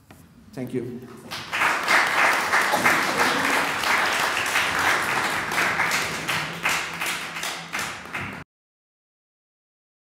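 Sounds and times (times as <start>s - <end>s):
audience applauding: 1.2s - 8.4s.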